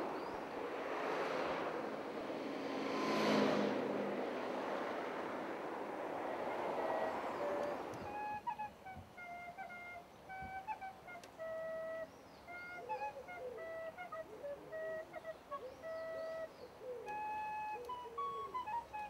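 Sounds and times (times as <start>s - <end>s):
car passing: 0.0s - 8.6s
slow wind instrument melody: 6.6s - 19.0s.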